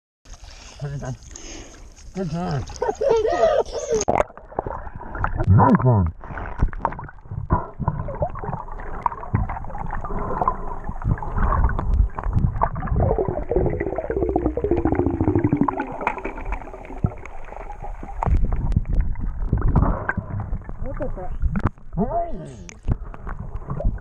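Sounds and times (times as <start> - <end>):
underwater bubbling: 3.7 - 24.0.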